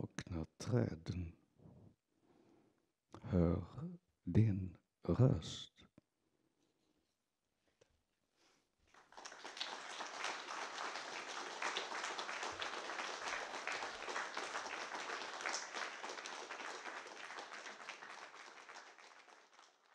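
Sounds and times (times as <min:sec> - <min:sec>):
audience applauding: 0:08.9 - 0:19.9.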